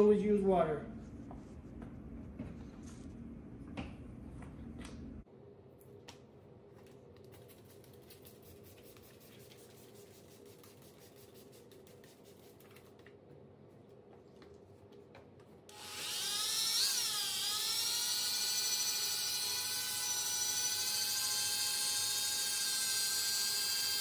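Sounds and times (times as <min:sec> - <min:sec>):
faint hum: 0:00.0 - 0:15.7.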